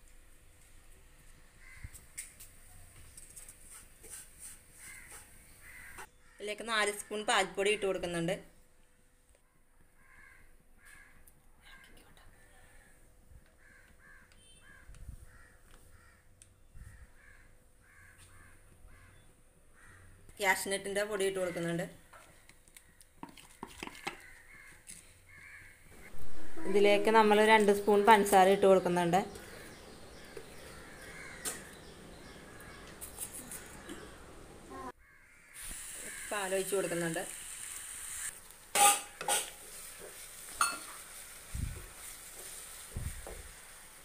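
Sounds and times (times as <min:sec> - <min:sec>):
harsh bird calls: 0:27.8 - 0:36.5.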